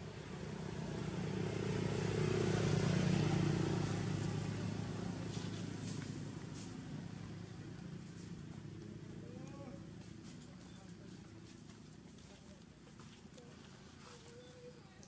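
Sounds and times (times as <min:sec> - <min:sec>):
vehicle passing by: 0:00.0 - 0:11.1.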